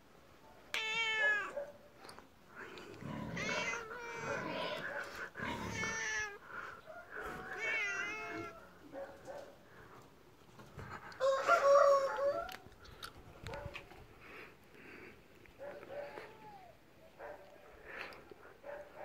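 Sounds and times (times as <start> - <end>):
cat meowing: 0.7 - 1.6, 3.3 - 4.8, 5.6 - 6.4, 7.5 - 8.6.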